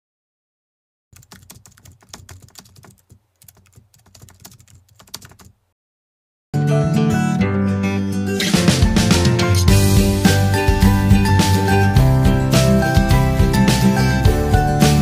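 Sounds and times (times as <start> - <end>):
keyboard key clicks: 1.2 - 5.6.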